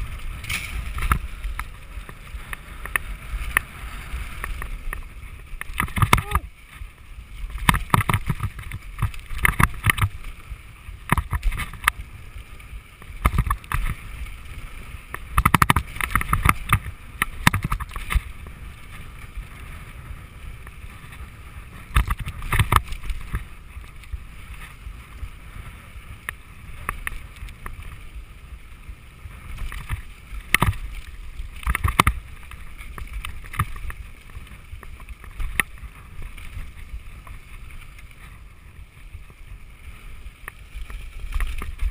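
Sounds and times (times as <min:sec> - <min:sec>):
bike clattering over rough ground: 0:00.0 - 0:41.9
bike tyre rumble: 0:00.0 - 0:41.9
wind rush on microphone: 0:00.0 - 0:41.9.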